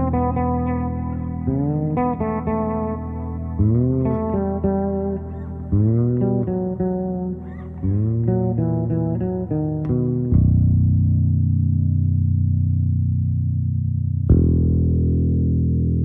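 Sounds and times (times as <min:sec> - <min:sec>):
bass playing sliding melody: 0:00.0 - 0:16.0.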